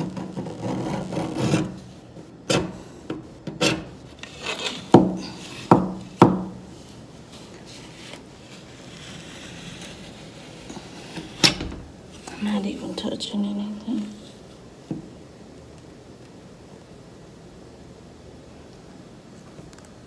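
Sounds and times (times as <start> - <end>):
stick scraping in door gap: 0.0 - 5.8, 7.5 - 11.9.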